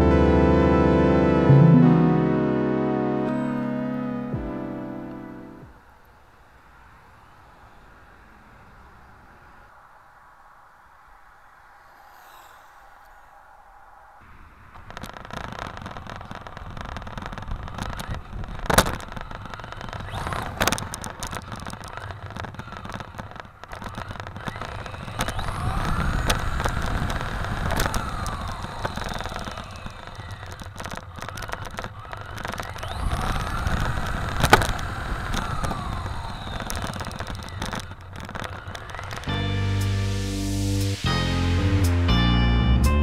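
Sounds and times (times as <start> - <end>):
tyres and wind rumbling: 1.2 - 42.8
electric drivetrain whine: 14.5 - 42.2.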